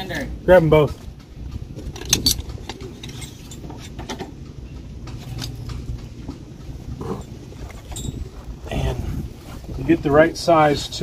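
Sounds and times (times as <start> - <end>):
metal parts clinking: 1.8 - 4.2.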